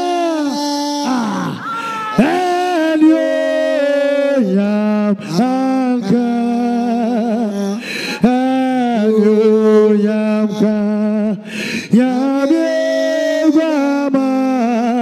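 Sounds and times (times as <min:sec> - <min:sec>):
man singing with vibrato: 0:00.0 - 0:15.0
man breathing between phrases: 0:07.8 - 0:08.2, 0:11.4 - 0:11.9.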